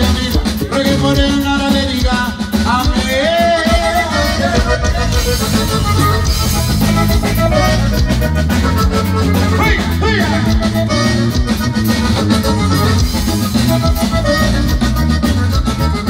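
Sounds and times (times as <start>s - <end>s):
button accordion melody: 0.0s - 16.0s
drums: 0.0s - 16.0s
guitar: 0.0s - 16.0s
electric bass: 3.7s - 16.0s.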